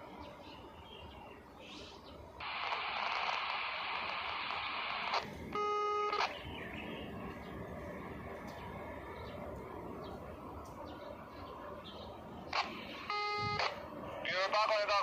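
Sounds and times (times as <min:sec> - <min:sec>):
radio static hiss: 0:02.4 - 0:07.4, 0:12.4 - 0:15.0
short steady beep: 0:05.6 - 0:06.3, 0:13.0 - 0:13.7.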